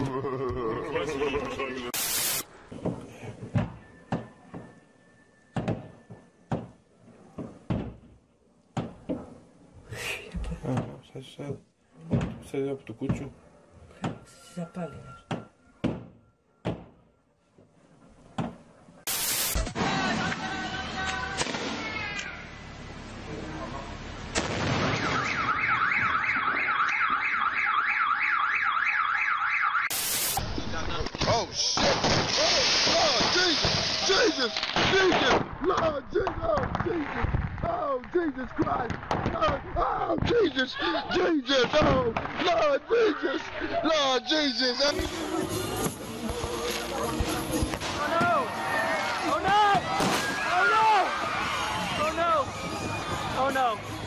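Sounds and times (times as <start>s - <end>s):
firework bang: 24.4s - 26.6s, 31.1s - 35.6s, 49.9s - 50.5s
fireworks bangs: 24.4s - 27.5s, 29.9s - 40.5s, 44.9s - 50.6s
car alarm sweeping: 24.9s - 30.4s.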